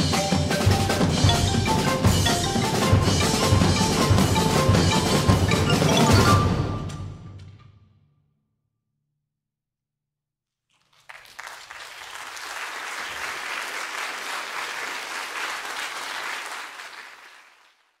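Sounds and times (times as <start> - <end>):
audience applause: 10.7 - 18.0.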